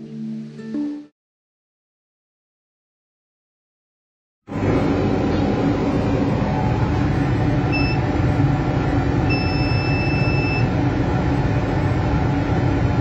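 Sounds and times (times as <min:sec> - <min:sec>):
laser cutter machine hum: 0:04.5 - 0:13.0
electronic beeps: 0:07.7 - 0:08.0, 0:09.3 - 0:10.7.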